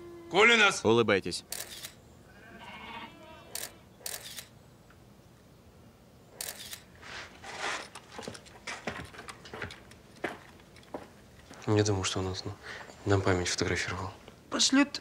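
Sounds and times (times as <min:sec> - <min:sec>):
camera shutter clicking: 0:01.5 - 0:02.0, 0:03.5 - 0:04.5, 0:06.4 - 0:06.9.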